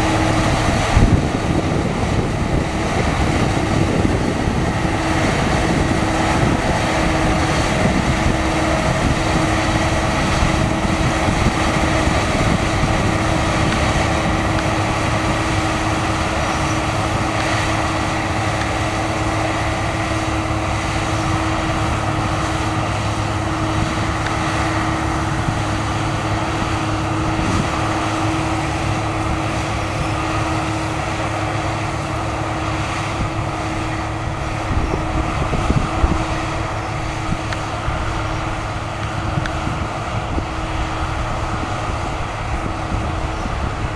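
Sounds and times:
combine harvester running: 0.0 - 43.9.

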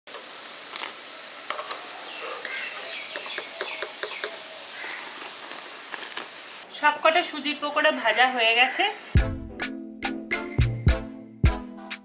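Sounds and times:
steady background hiss: 0.1 - 9.2
small birds chirping: 1.0 - 5.9.

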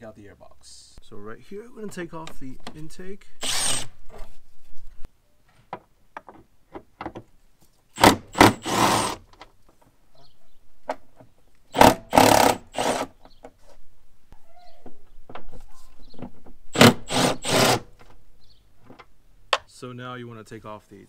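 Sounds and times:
cordless drill running: 3.4 - 3.9, 8.0 - 9.2, 11.8 - 13.1, 16.8 - 17.8.

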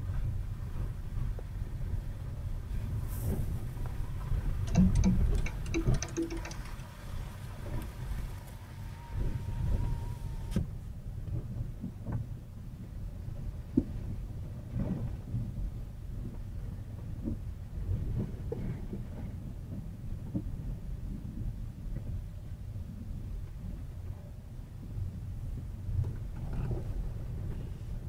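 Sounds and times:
suspension knocks and thumps: 4.6 - 7.2
click: 4.7 - 6.8.

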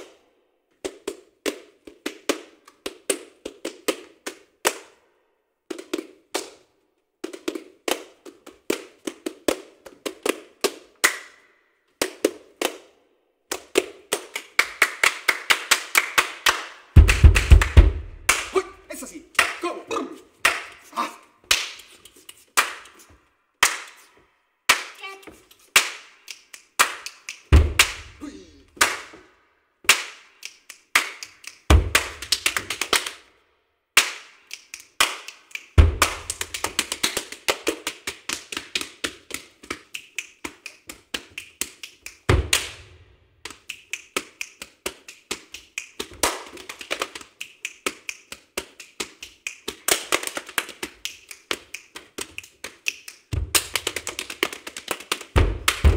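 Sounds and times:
hand claps: 0.8 - 5.0, 5.7 - 33.3, 34.0 - 55.9
slaps on the body: 16.0 - 18.6, 26.8 - 29.3, 29.9 - 30.3, 31.0 - 33.1, 35.0 - 39.8, 42.3 - 43.6, 53.3 - 55.9
barefoot stamping on wooden floor: 17.0 - 18.4, 27.5 - 28.2, 55.4 - 55.9
deep thumps: 17.0 - 18.5, 27.5 - 28.2, 35.8 - 36.2, 55.4 - 55.9.

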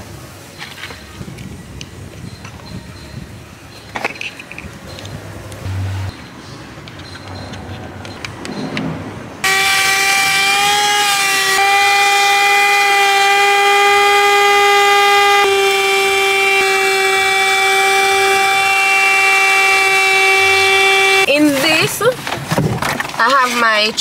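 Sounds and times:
handheld vacuum whining: 9.4 - 21.3.

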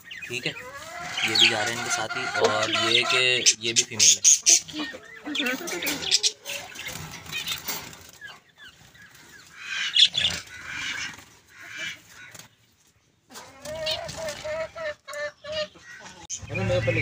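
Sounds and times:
chickens clucking: 0.0 - 17.0
finches fluttering in a cage: 5.4 - 9.5.

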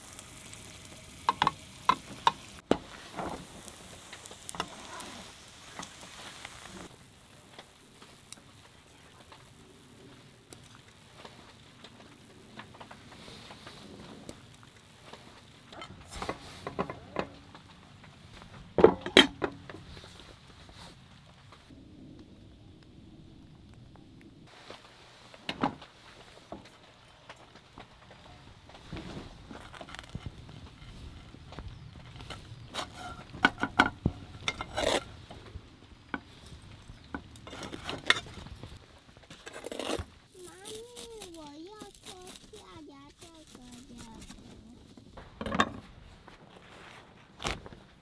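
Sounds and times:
metal cookware clanking: 18.8 - 19.7
scrapes and rattles in frying pan: 28.9 - 35.3.

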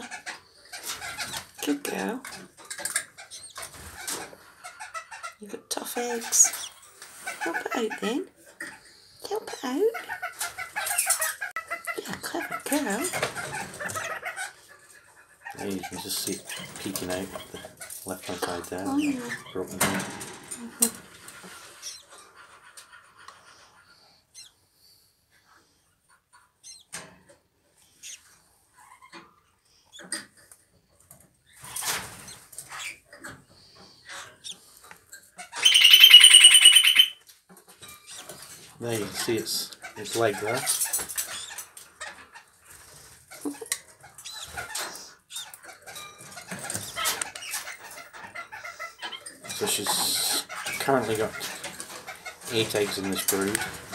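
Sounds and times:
rustling and scratching in nest: 0.2 - 19.5, 29.9 - 36.8, 37.7 - 53.9
chick peeping: 35.4 - 37.2, 38.1 - 53.9.

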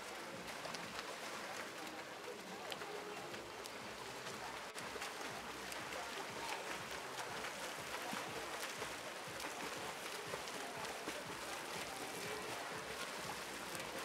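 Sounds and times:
swimmers splashing: 0.0 - 14.0.

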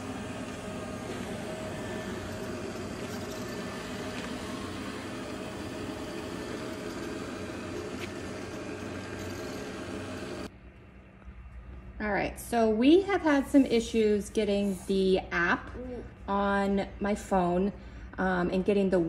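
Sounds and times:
robot vacuum whirring: 0.0 - 10.5.

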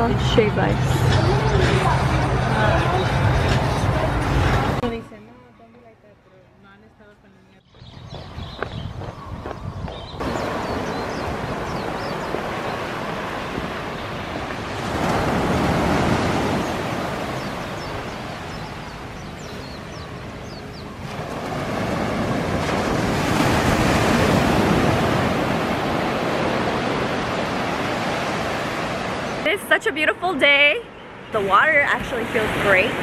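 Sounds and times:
waves washing up sand: 10.2 - 19.4, 21.0 - 29.5.

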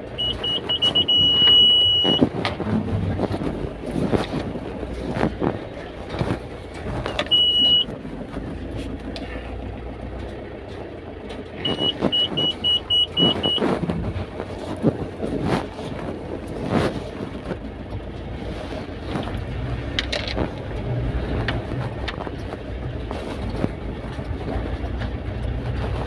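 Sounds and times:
engine and road noise: 0.0 - 26.0
short electronic beeps: 0.1 - 2.3, 7.1 - 7.9, 11.6 - 13.7
long electronic beep: 0.2 - 2.2, 7.1 - 7.9, 11.6 - 13.6.

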